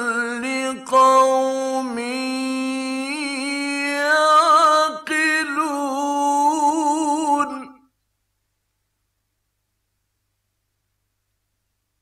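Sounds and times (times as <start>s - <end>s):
man reciting melodically: 0.0s - 7.8s.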